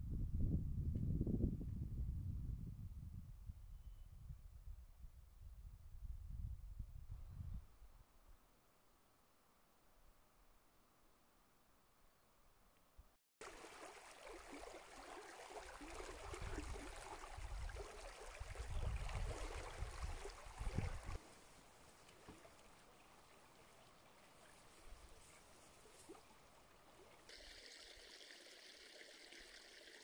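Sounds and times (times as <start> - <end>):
brook trickling and gurgling: 13.4 - 30.0.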